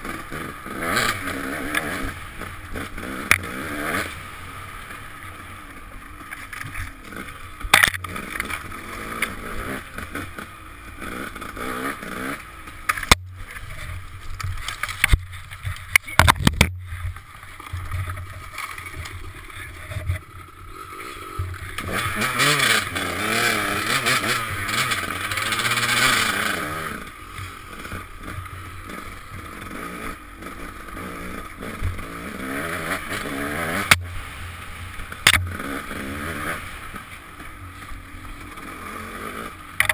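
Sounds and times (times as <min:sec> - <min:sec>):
dirt bike engine revving: 0:00.0 - 0:16.8, 0:17.4 - 0:39.9
wind noise: 0:13.9 - 0:17.2.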